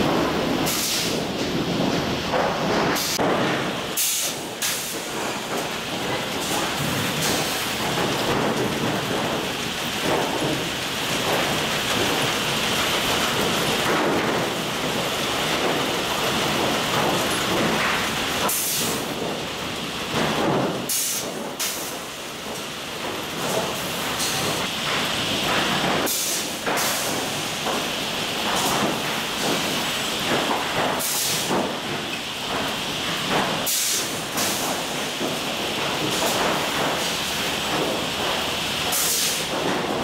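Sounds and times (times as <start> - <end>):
sharp knocks: 0.0 - 12.3
machinery and conveyor chains: 0.0 - 40.0.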